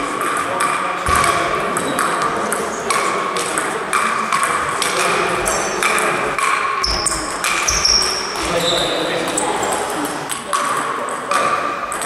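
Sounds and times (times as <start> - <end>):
table tennis ball clicking: 0.1 - 5.2, 9.7 - 12.0.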